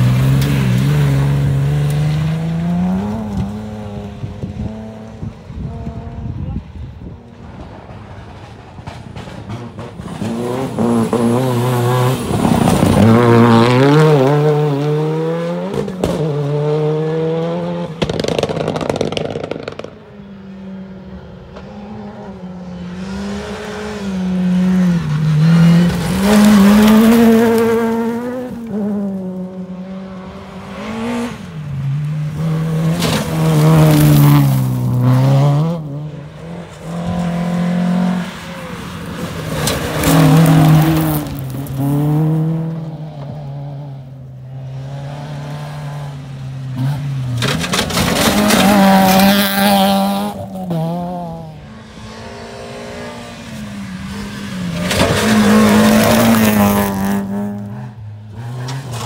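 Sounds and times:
rally car engines at full throttle: 0.0 - 59.0.

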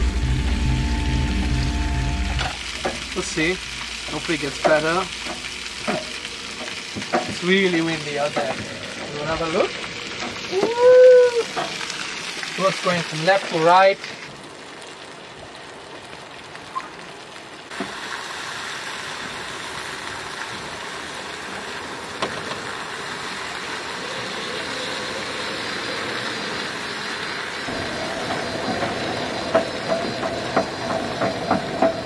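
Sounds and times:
steady hum: 0.0 - 6.6
wind and rain: 0.0 - 32.0.

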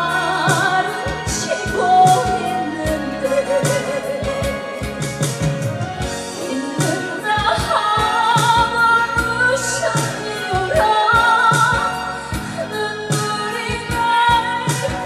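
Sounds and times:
band accompaniment with drum beat: 0.0 - 15.0
woman singing a slow ballad: 0.0 - 15.0.

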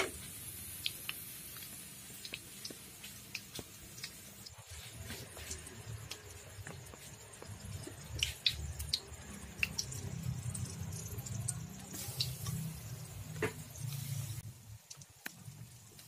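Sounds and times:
hot oil crackling and spitting: 0.0 - 16.0
sizzling: 0.0 - 16.0.

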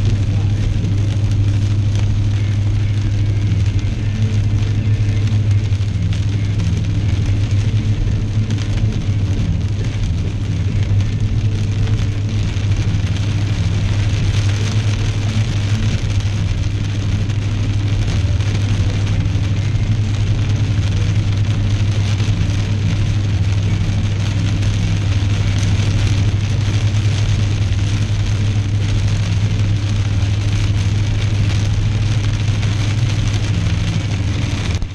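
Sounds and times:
car engine drone: 0.0 - 34.9
rain hiss: 0.0 - 34.9.

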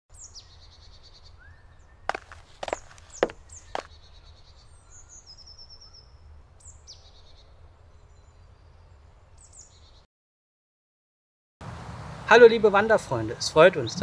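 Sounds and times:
bird trill: 0.1 - 10.0
songbirds calling: 0.1 - 10.1, 12.9 - 14.0
sharp knocks: 2.1 - 3.9.

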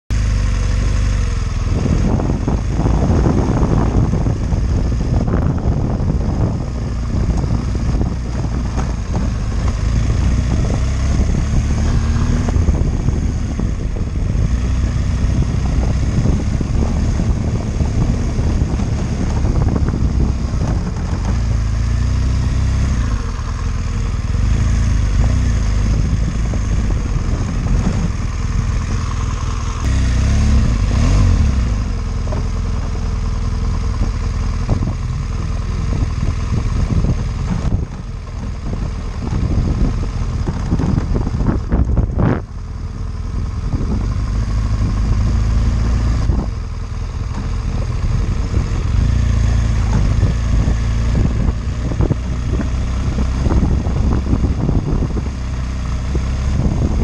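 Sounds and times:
motorcycle engine running: 0.1 - 57.0.

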